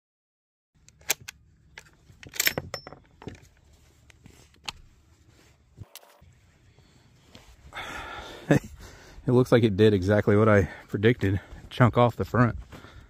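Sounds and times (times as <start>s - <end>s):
metallic clicks and clinks: 2.2s - 3.4s.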